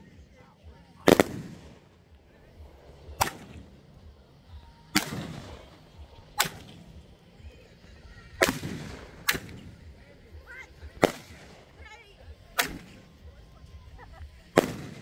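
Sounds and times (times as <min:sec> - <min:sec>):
fireworks bangs with echo: 0:01.0 - 0:04.0, 0:04.9 - 0:07.0, 0:08.4 - 0:09.9, 0:10.9 - 0:11.8, 0:12.6 - 0:13.1, 0:14.5 - 0:15.0.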